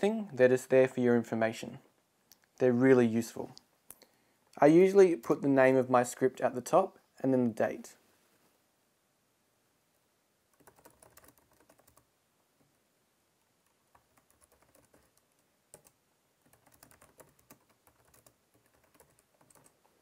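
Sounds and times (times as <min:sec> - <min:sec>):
faint keyboard typing: 0:10.5 - 0:12.8, 0:13.5 - 0:20.0.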